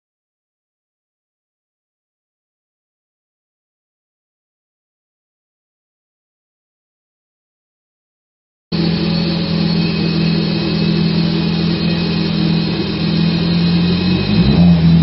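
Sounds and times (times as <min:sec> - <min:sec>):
car engine running on dyno: 0:08.7 - 0:15.0.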